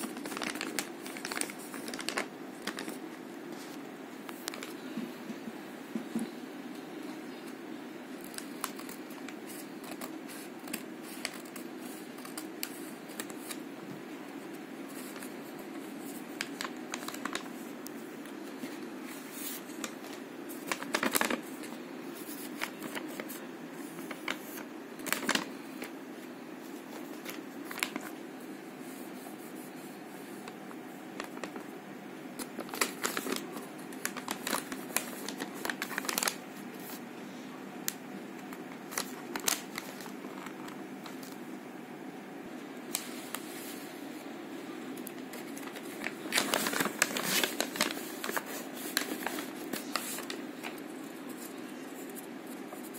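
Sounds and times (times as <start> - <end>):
paper rustling: 0.0 - 4.8, 8.2 - 13.7, 14.3 - 26.0, 26.6 - 28.2, 28.8 - 31.7, 32.4 - 37.0, 38.4 - 41.4, 45.0 - 52.9.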